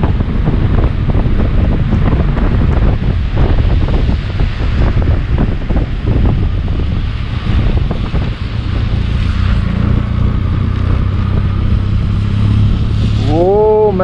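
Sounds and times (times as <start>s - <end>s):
motorcycle engine running: 0.0s - 14.0s
wind buffeting microphone: 0.0s - 14.0s.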